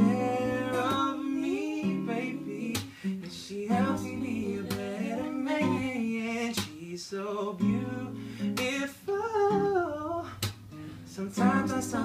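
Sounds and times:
man singing: 0.0 - 10.5, 11.1 - 12.0
strummed acoustic guitar: 0.0 - 12.0.

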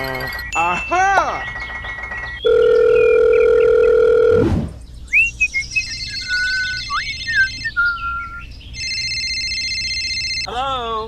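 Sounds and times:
high steady ringing tone: 0.0 - 4.4, 5.6 - 7.6, 8.8 - 10.5
chirping electronic tweets: 0.0 - 10.5
electronic dial tone: 1.4 - 4.5, 8.8 - 10.5
falling electronic swoop: 4.3 - 4.8.

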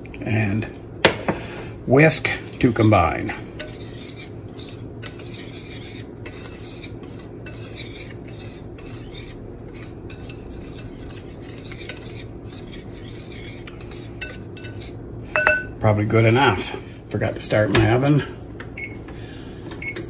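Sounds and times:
low steady hum: 0.0 - 20.0
whisk scratching through flour: 1.8 - 15.0.

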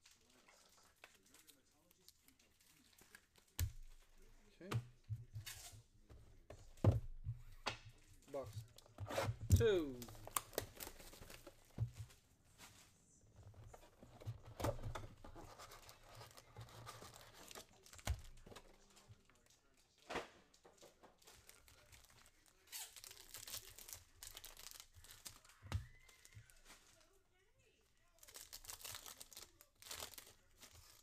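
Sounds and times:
foil wrapper tearing and crinkling: 21.3 - 27.1, 28.2 - 31.0.

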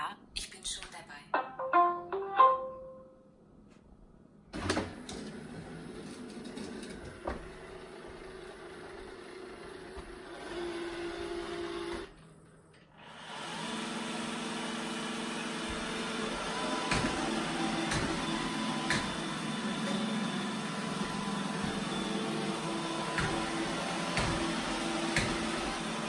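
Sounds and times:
robot vacuum running: 13.0 - 26.0.

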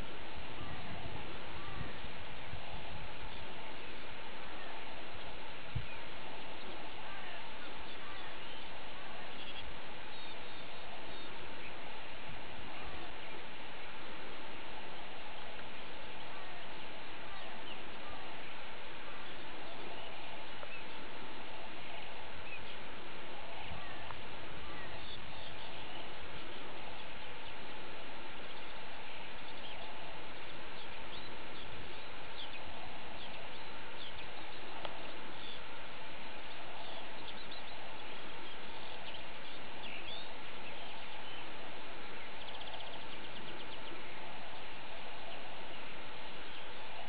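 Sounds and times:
outdoor background hiss: 0.0 - 47.0
small birds chirping: 0.0 - 47.0
bird trill: 42.2 - 44.0.

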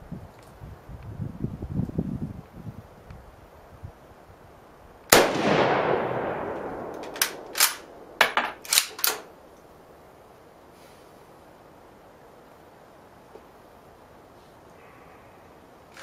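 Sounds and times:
rifle shot echoing: 5.1 - 8.8
rifle bolt metallic clacks: 6.8 - 9.3.

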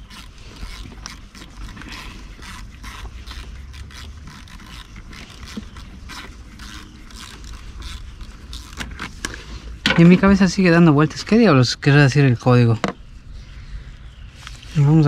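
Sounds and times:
hand tools clicking and scraping: 0.0 - 10.4.

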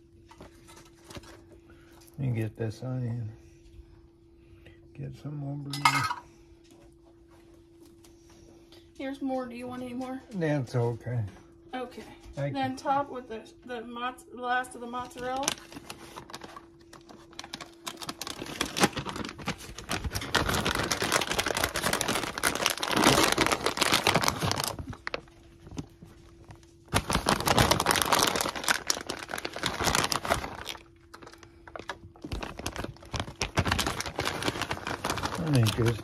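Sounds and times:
plastic bag crinkling: 14.9 - 36.0.

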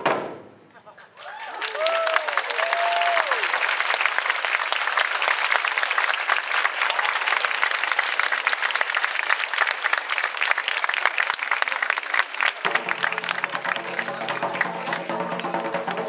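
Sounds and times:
crowd applauding: 1.0 - 16.0
music with held notes: 12.7 - 16.0.

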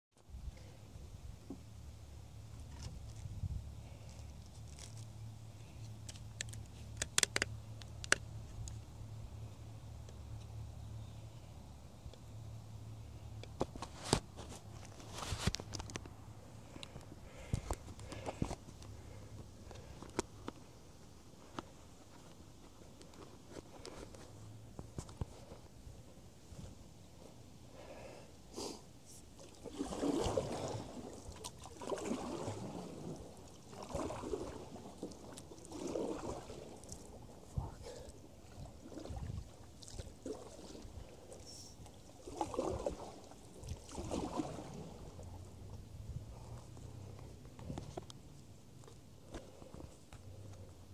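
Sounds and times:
water sloshing against canoe: 29.3 - 45.9.

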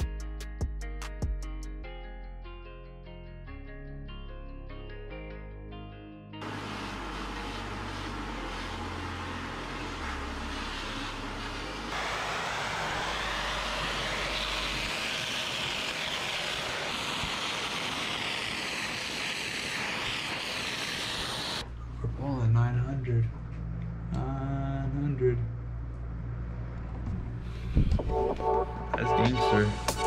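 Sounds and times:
low bass background music: 0.0 - 6.4, 21.7 - 30.0
loud steady rushing noise: 6.4 - 21.6.

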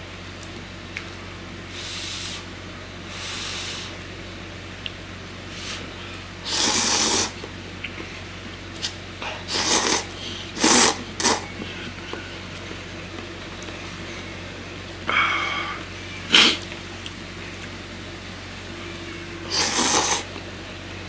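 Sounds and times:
slurping noodles and broth: 6.4 - 7.4, 8.8 - 11.5, 19.5 - 20.3.

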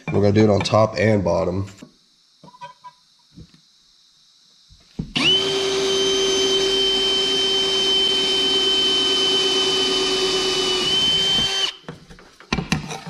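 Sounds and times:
power drill whining through steel: 5.1 - 11.8.

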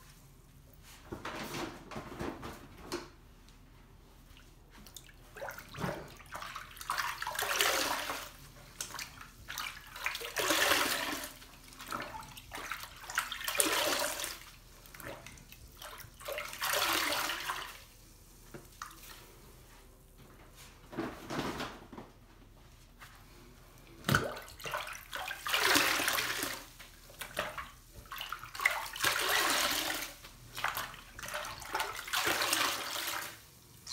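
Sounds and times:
water splashing: 4.9 - 17.8, 24.1 - 33.4.

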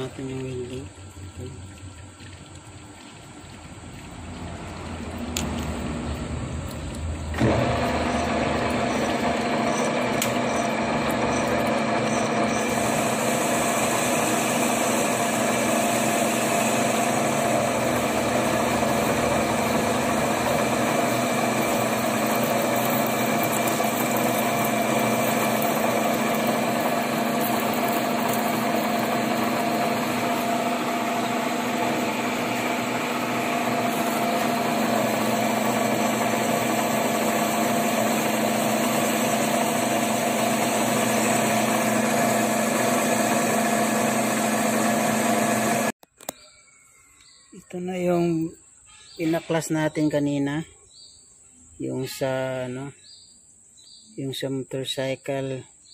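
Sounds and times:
metal lathe running with whine: 4.2 - 45.9.

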